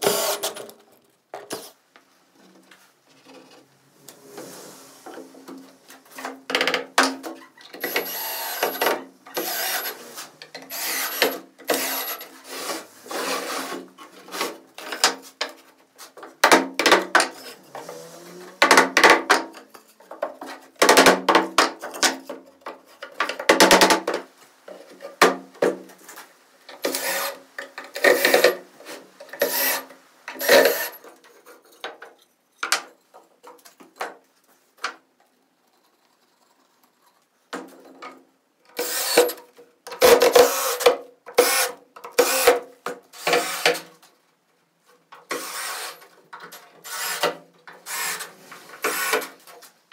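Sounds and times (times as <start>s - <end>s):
wood rubbing and scraping: 0.1s - 16.3s, 17.2s - 20.8s.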